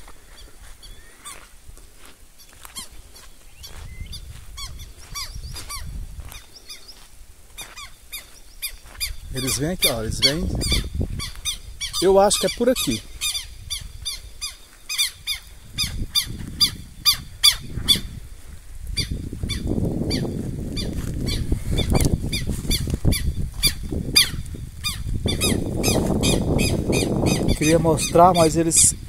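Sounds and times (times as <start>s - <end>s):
birds giving harsh alarm calls: 2.6s - 7.0s, 7.6s - 18.2s, 19.0s - 29.0s
low rustling noise: 13.0s - 27.0s.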